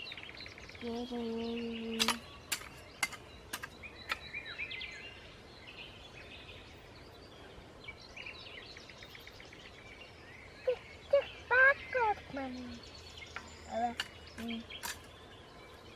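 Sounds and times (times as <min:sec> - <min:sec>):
small birds chirping: 0:00.0 - 0:15.9
hoe chopping into soil: 0:02.0 - 0:04.3.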